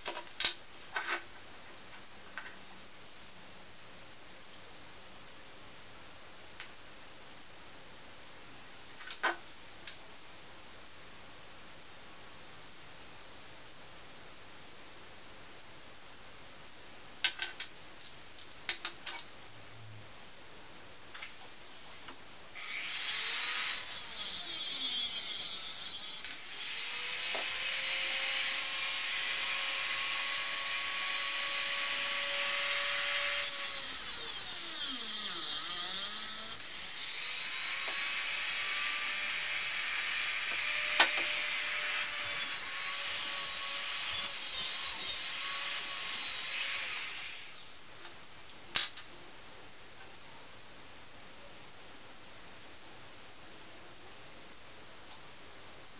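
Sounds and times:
rotary tool cutting wire: 22.6 - 47.3.

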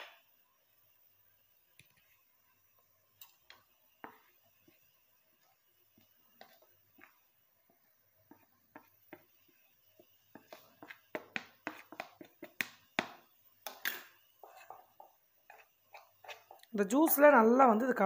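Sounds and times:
spoon scraping and tapping bowl: 3.2 - 4.8, 6.0 - 7.2, 8.3 - 17.3.

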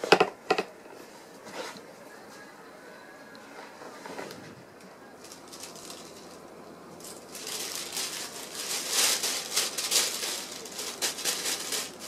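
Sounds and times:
plastic bag crinkling: 5.2 - 12.0.

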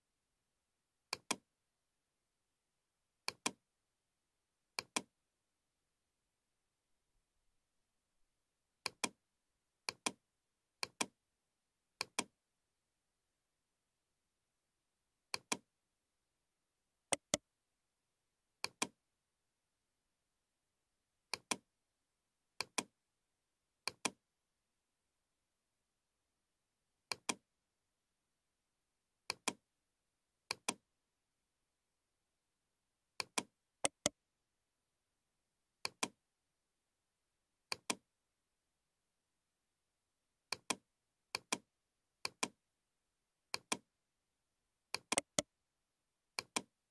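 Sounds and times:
mouse button clicks: 1.1 - 1.4, 3.3 - 3.6, 4.8 - 5.1, 8.8 - 9.2, 12.0 - 12.3, 17.1 - 17.4, 18.6 - 19.0, 29.3 - 29.6, 33.2 - 34.1, 37.7 - 38.0, 44.9 - 45.5, 46.4 - 46.7.

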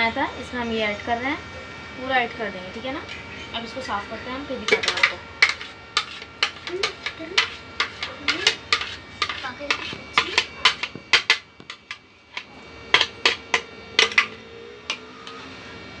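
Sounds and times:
blender jar knocking on ceramic bowl: 8.2 - 12.0, 12.9 - 15.1.

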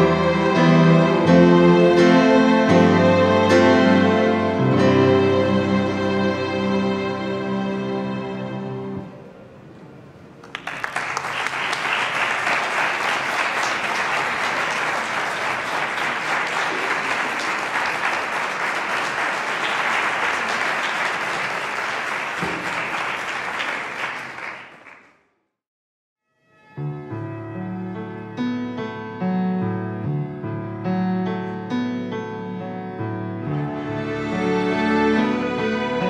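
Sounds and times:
orchestra holding chord: 0.0 - 9.2, 33.4 - 36.0
audience applause: 10.4 - 25.2.

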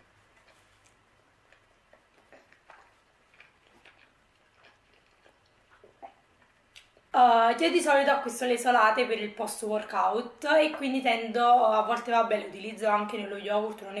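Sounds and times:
person chewing: 0.0 - 7.1.

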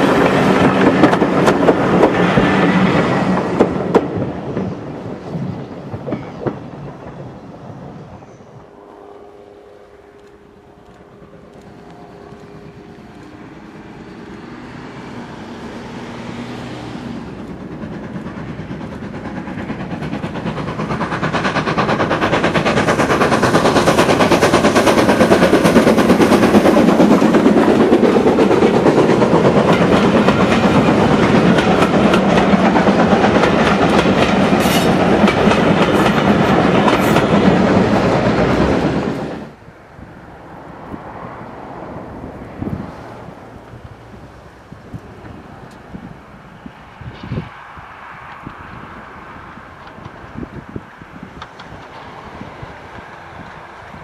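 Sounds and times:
wheels clattering over rail joints: 0.0 - 7.4, 10.9 - 39.4
steam locomotive heavy exhaust: 0.0 - 54.0.

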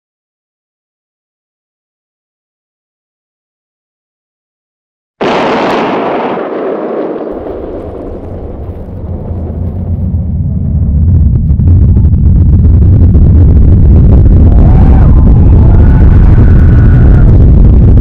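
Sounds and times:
cannon boom: 5.2 - 18.0
deep rumble: 5.2 - 18.0.

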